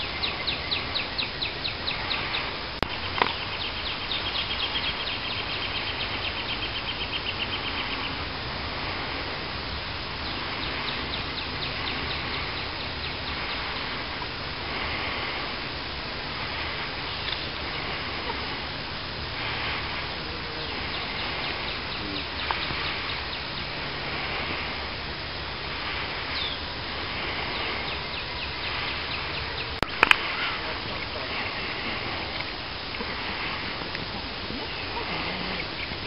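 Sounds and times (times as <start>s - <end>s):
birds calling: 0.0s - 36.0s
steady background noise: 0.0s - 36.0s
sharp clicks: 29.8s - 30.3s.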